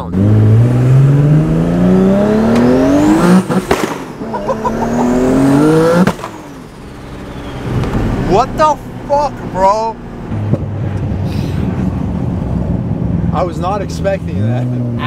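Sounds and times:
car engine revving: 0.0 - 15.0
exhaust pops: 3.4 - 4.2, 6.0 - 8.8
high whistle: 7.2 - 7.7.

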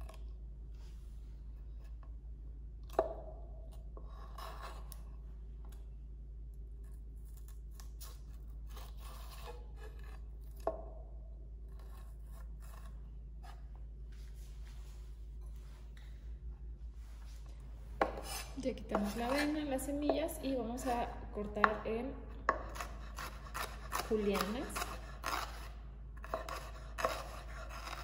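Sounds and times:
knife scraping chile seeds: 6.8 - 10.6, 18.0 - 20.0, 22.5 - 28.0.

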